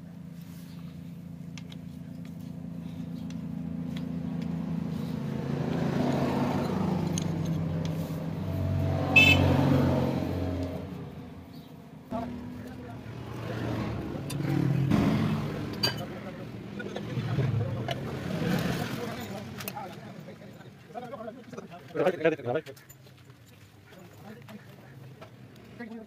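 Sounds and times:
vehicle engine passing: 0.3s - 20.4s.

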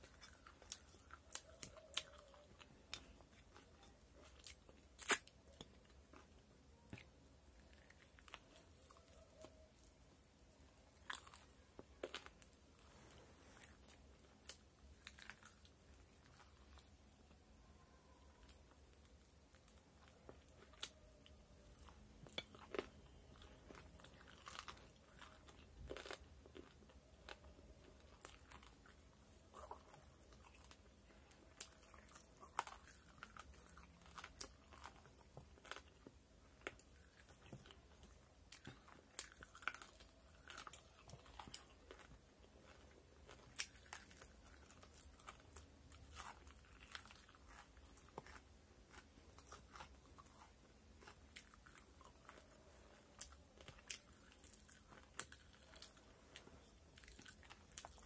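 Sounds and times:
person chewing: 0.0s - 58.0s.

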